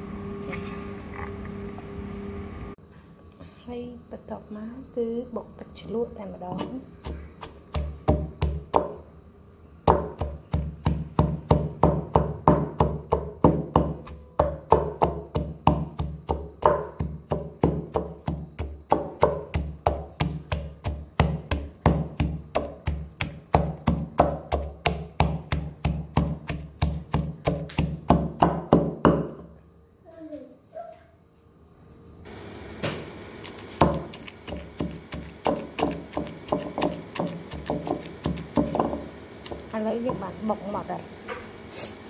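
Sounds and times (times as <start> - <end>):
pestle pounding in wooden mortar: 6.4 - 9.0, 9.8 - 29.4, 33.4 - 40.4.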